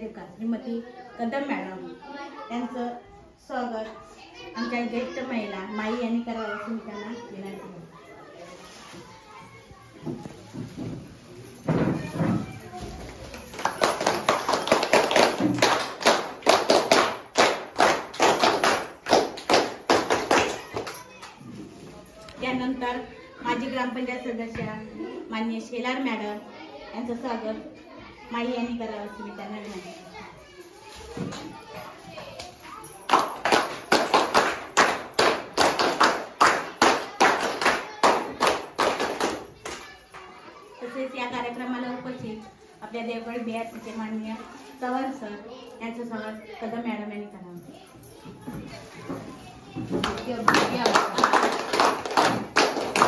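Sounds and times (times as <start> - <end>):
small audience clapping: 13.0 - 21.6, 32.3 - 40.4, 49.8 - 53.0.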